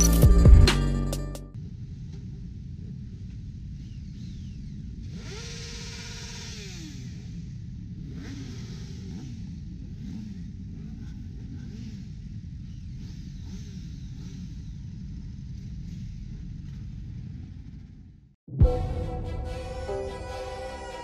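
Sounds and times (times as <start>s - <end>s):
motorcycle engine revving: 1.6s - 18.3s
motorcycle engines rumbling: 1.6s - 18.3s.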